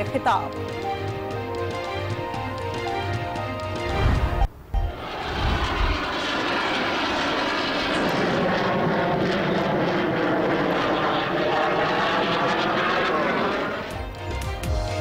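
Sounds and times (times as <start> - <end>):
fighter jet flying past: 3.7 - 14.3.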